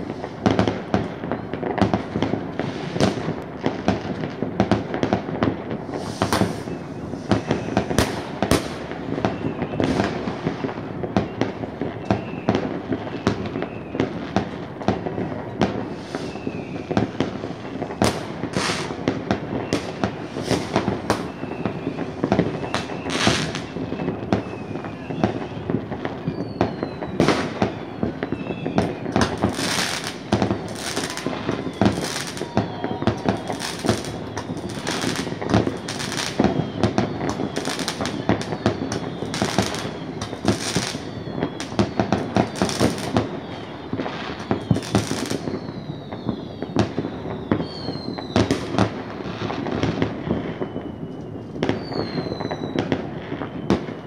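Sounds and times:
distant fireworks rumble and crackle: 0:00.0 - 0:54.0
faint whistles of rising rockets: 0:00.0 - 0:54.0
loud firework bangs: 0:00.0 - 0:54.0.

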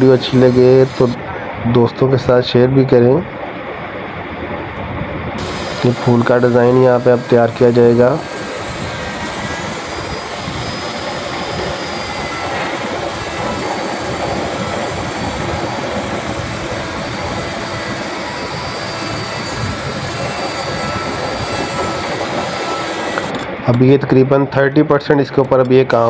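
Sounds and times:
router bit cutting wood: 0:00.0 - 0:01.2, 0:05.4 - 0:23.5
wood router motor whine: 0:00.0 - 0:01.3, 0:05.4 - 0:23.6.

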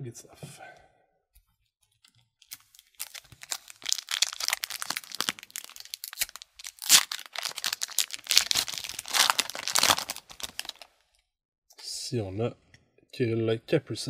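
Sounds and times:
foil wrapper crinkling and tearing: 0:02.4 - 0:11.0.

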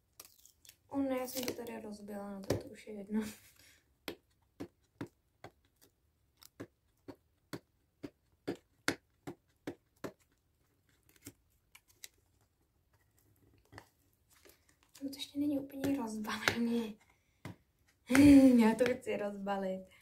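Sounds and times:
fingers clicking and tapping box: 0:04.0 - 0:12.2, 0:12.8 - 0:19.0.

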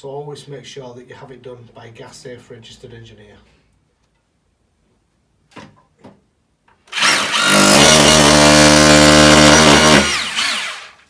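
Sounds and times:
electric drill drilling into wall: 0:06.9 - 0:11.0.

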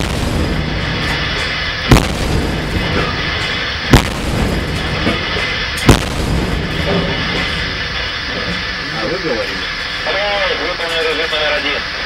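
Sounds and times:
naval gun booms: 0:00.0 - 0:07.6.

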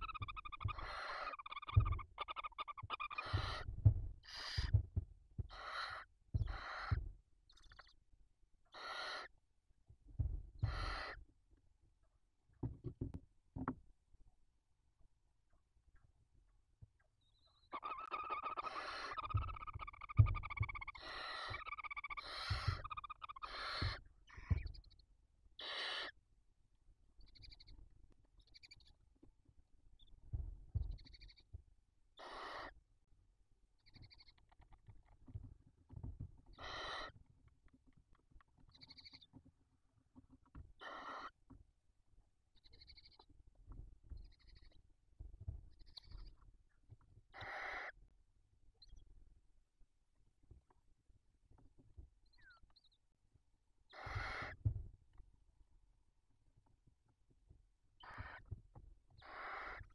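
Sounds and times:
barn owls hissing: 0:00.3 - 0:03.6, 0:04.3 - 0:04.7, 0:08.8 - 0:09.3, 0:17.8 - 0:24.0, 0:25.6 - 0:26.1, 0:36.6 - 0:37.1, 0:47.4 - 0:47.9, 0:53.9 - 0:54.5, 0:59.2 - 0:59.8
soft low thumps of movement: 0:03.3 - 0:05.6, 0:09.9 - 0:10.8.

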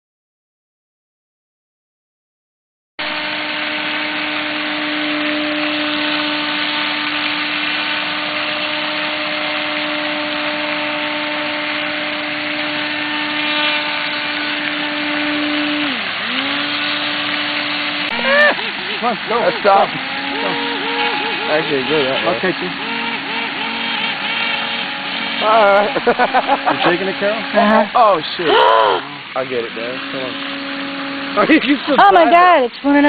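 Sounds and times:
model airboat motor and propeller: 0:03.0 - 0:33.0.

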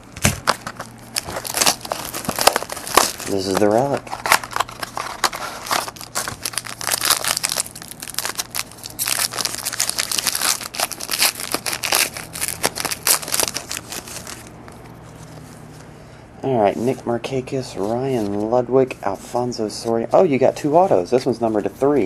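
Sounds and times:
wrapper crinkling: 0:00.3 - 0:15.4.

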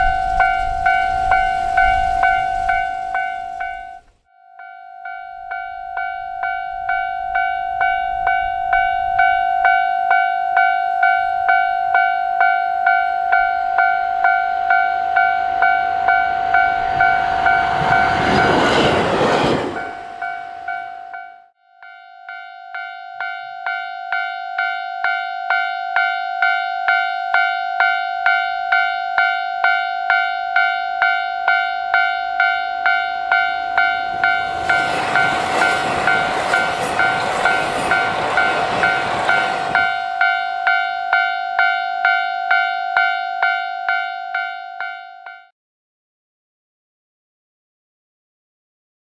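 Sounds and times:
diesel train passing: 0:00.0 - 0:04.1, 0:05.4 - 0:21.4, 0:30.6 - 0:43.1
level-crossing alarm bell ringing: 0:00.0 - 0:45.5.

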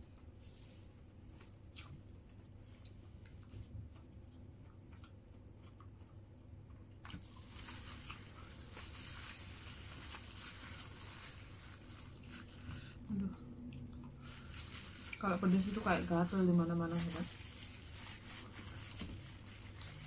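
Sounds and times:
plastic glove and paper rustling: 0:00.0 - 0:01.8, 0:07.1 - 0:13.2, 0:13.9 - 0:20.0
food squishing: 0:00.2 - 0:20.0
chewing mouth clicks: 0:02.6 - 0:07.5.

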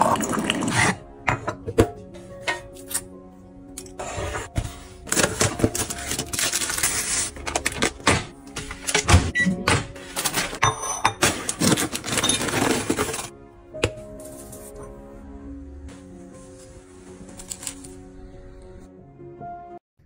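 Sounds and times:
paper bag crinkling: 0:05.1 - 0:08.0.

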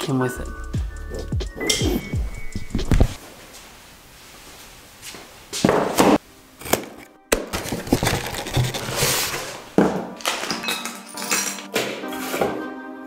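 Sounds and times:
plastic bags crinkling: 0:07.4 - 0:11.7.

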